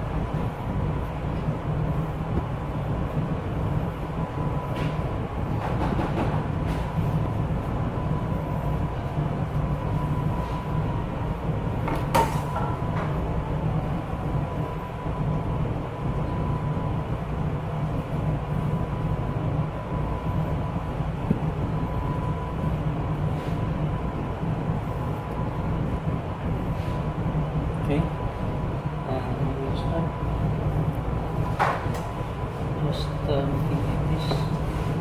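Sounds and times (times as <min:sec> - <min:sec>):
kitchen equipment drone: 0:00.0 - 0:35.0
faint high whine: 0:12.6 - 0:35.0.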